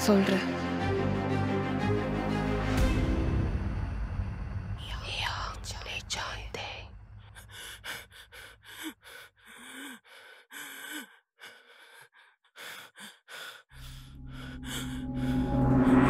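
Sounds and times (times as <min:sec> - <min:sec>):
low drone: 0:00.0 - 0:09.2, 0:13.8 - 0:16.0
person gasping and breathing: 0:07.3 - 0:15.7.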